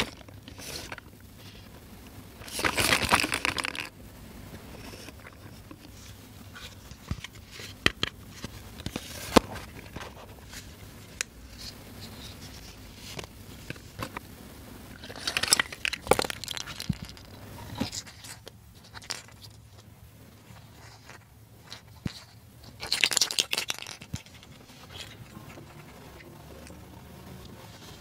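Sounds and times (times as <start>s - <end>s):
plastic pieces clattering on table: 15.0s - 18.3s, 22.8s - 25.1s.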